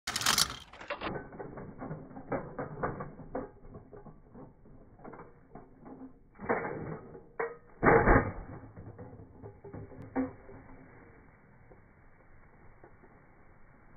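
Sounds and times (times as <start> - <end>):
scooter wheels clattering on asphalt: 0.1 - 6.3
scooter landing crash: 7.8 - 10.2.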